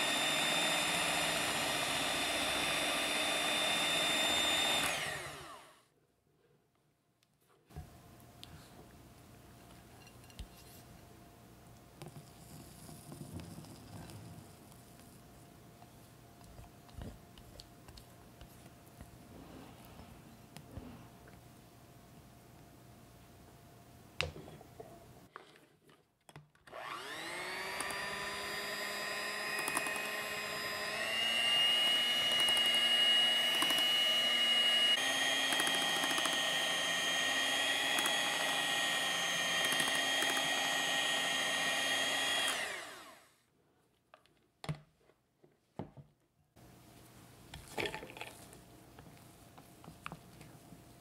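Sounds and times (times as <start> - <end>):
electric hand mixer whine: 0.0 - 5.8, 26.7 - 43.4.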